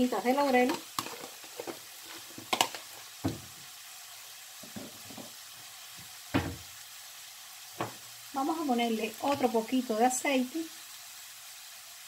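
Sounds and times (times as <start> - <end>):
vegetables sizzling in oil: 0.0 - 12.0
sharp clicks and pops: 2.4 - 2.9.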